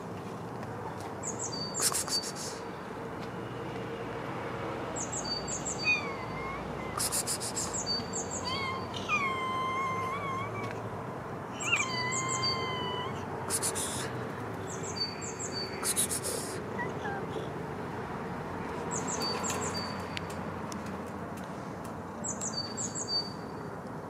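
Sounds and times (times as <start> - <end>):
cats meowing: 5.7 - 10.9, 11.5 - 14.1, 16.0 - 17.6.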